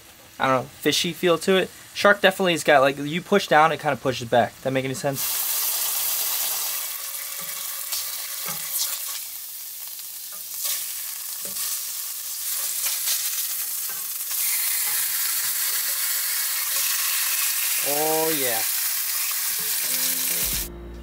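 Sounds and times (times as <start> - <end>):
fish sizzling in a skillet: 5.2 - 20.7.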